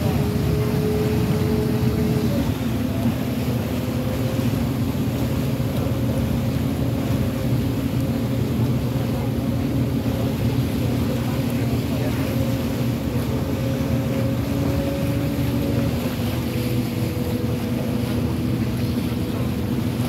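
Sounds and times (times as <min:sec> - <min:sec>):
boat engine droning: 0:00.0 - 0:20.0.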